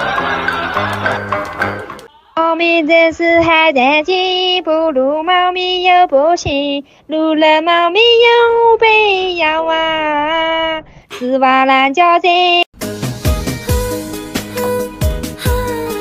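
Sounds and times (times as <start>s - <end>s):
high-pitched voice singing: 2.1s - 12.6s, 14.5s - 16.0s.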